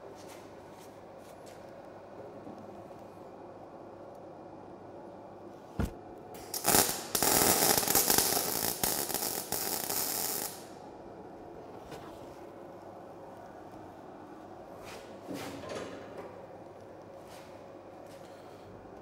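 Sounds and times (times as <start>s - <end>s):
welding arc crackling: 5.8s - 10.8s.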